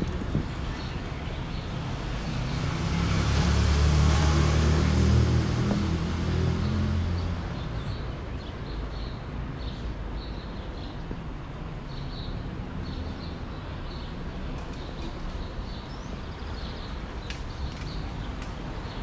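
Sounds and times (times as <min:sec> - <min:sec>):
passing vehicle rumble: 0:00.0 - 0:08.0
small birds chirping: 0:11.9 - 0:19.0.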